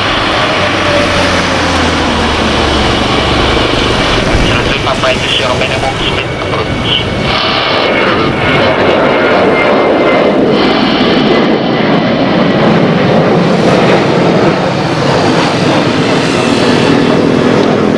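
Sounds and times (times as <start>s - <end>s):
jet engine roar: 0.0s - 17.9s.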